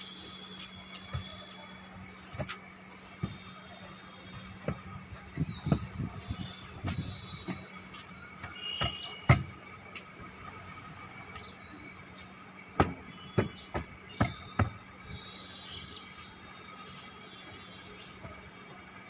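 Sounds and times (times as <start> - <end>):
cushions thumping on wood: 12.8 - 14.8.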